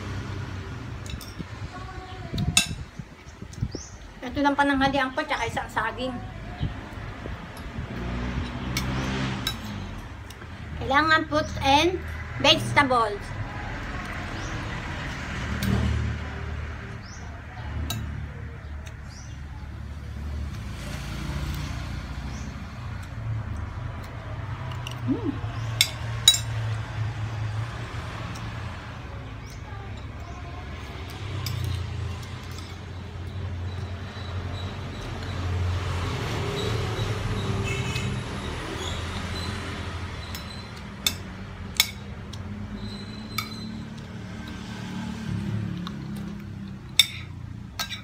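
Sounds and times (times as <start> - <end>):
cutlery clinking on plate: 47.0 - 48.0.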